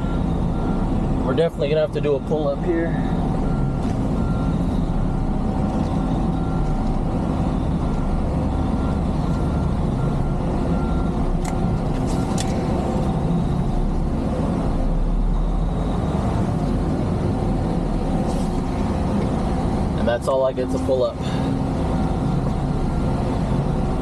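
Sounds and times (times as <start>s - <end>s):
reversing alarm beeping: 0.0s - 14.0s, 14.6s - 16.6s
diesel engine running: 0.0s - 24.0s.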